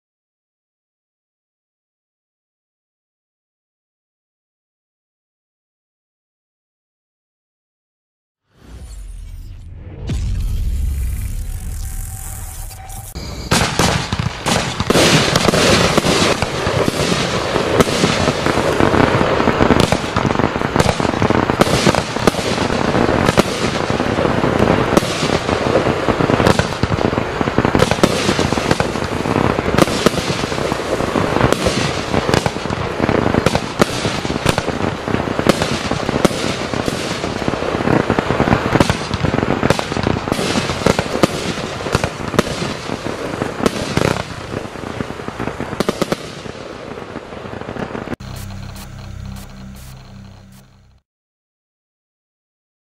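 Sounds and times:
fireworks pops and bangs: 0:13.5 - 0:50.4.

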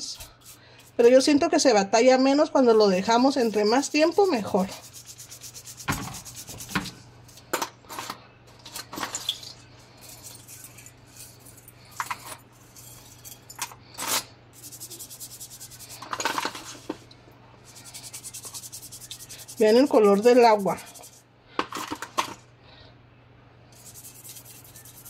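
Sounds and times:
toothbrush scrubbing: 0:03.0 - 0:06.9, 0:09.9 - 0:11.7, 0:14.6 - 0:16.9, 0:17.6 - 0:21.2, 0:23.8 - 0:25.0
jewellery clinking: 0:08.6 - 0:14.2.

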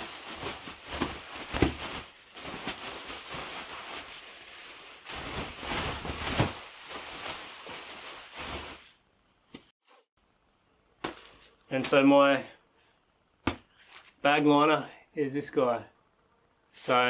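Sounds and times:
nylon sleeping bag rustling: 0:00.0 - 0:09.0.

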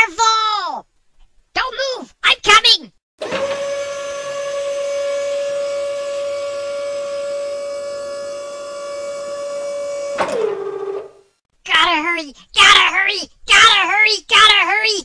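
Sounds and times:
toy crane high-pitched whine: 0:03.2 - 0:11.3.

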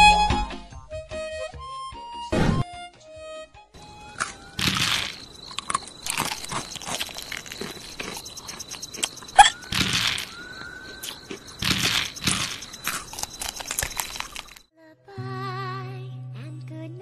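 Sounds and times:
crisp crunching and chewing: 0:04.0 - 0:14.7.

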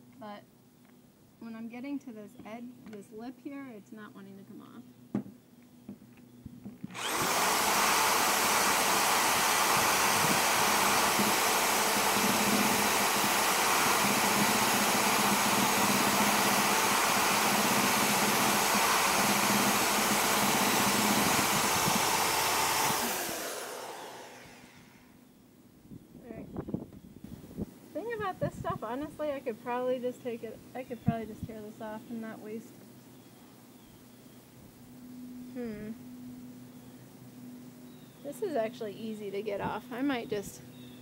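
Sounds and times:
drill spinning eraser wheel: 0:06.9 - 0:25.0.

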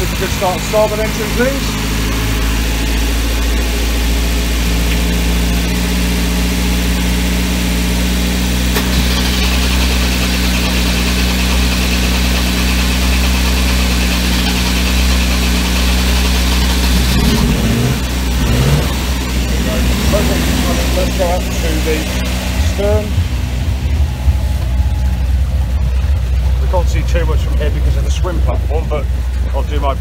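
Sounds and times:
boat engine idling: 0:00.0 - 0:30.0.

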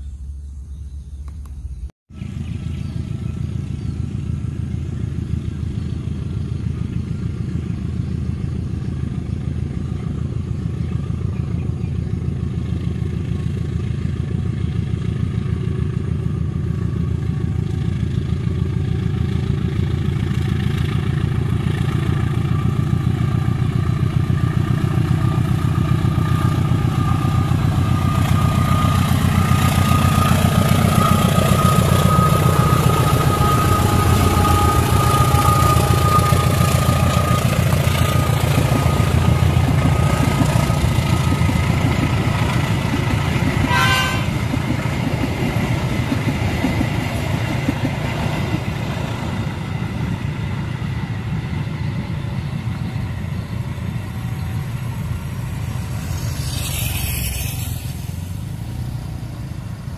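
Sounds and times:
diesel locomotive engine rumble: 0:00.0 - 0:59.9
train carriages rolling on rails: 0:05.4 - 0:59.9
steady whine: 0:20.9 - 0:45.0, 0:45.8 - 0:59.9
brief higher tone: 0:43.7 - 0:44.4.

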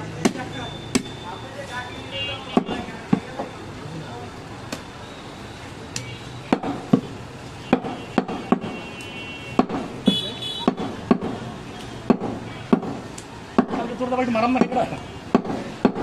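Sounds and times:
butcher's blade chopping on wooden block: 0:07.7 - 0:08.8, 0:09.6 - 0:11.4, 0:12.1 - 0:13.0, 0:13.6 - 0:13.9.

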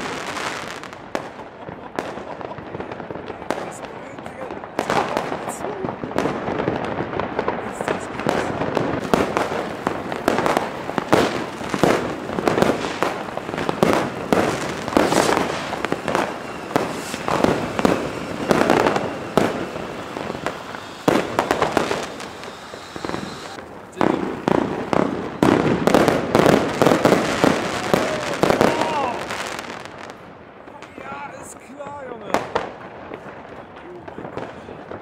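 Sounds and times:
firecrackers and fireworks banging: 0:00.0 - 0:35.0.

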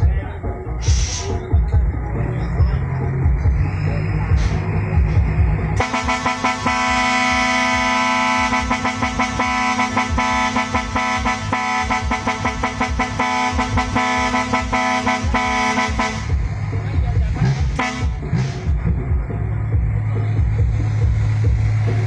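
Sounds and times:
truck air horns chord: 0:00.8 - 0:01.5, 0:04.2 - 0:18.8.

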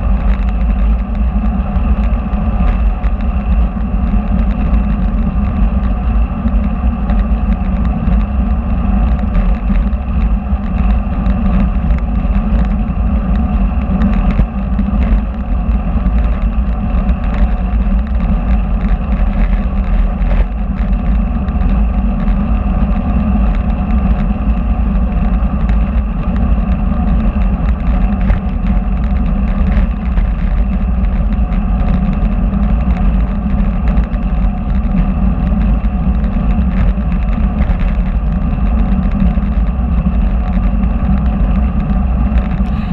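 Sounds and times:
bicycle tyre noise: 0:00.0 - 0:42.9
faint steady hum: 0:00.0 - 0:42.9
wind rumble: 0:00.0 - 0:42.9.

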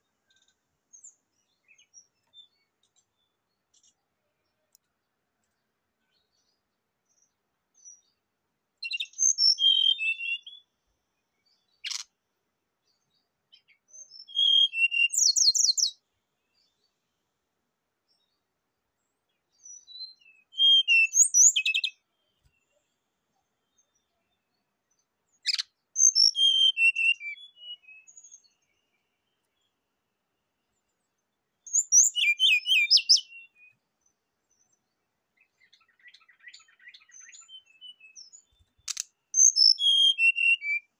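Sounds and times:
bird chirps and trills: 0:11.5 - 0:12.1, 0:13.6 - 0:15.9, 0:19.8 - 0:22.8, 0:25.0 - 0:28.8, 0:31.7 - 0:33.8, 0:34.6 - 0:40.9.

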